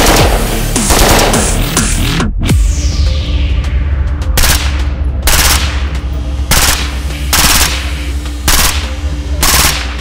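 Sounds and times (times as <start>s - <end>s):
dubstep music with deep bass: 0.0s - 4.4s.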